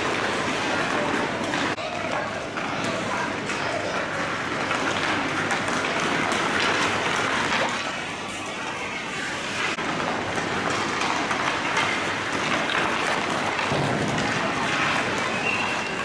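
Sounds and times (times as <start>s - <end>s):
sticks clicking on pucks: 0.0s - 8.9s, 9.5s - 16.0s
skates scraping on ice: 2.5s - 8.1s, 9.6s - 16.0s.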